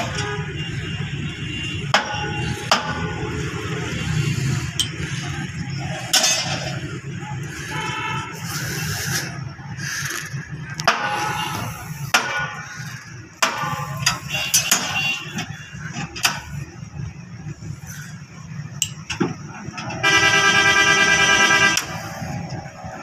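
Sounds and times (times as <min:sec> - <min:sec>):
loud horn blaring: 0:00.0 - 0:02.6, 0:07.5 - 0:08.9, 0:19.8 - 0:22.4
machinery rumble: 0:00.0 - 0:23.0
metallic knocks and clanks: 0:01.9 - 0:03.2, 0:06.1 - 0:06.8, 0:13.4 - 0:16.7
voices: 0:01.9 - 0:20.0.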